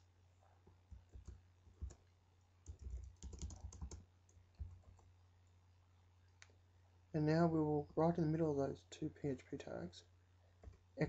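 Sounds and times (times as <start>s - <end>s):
low steady hum: 0.0s - 11.0s
keyboard typing: 0.6s - 5.1s, 10.6s - 10.8s.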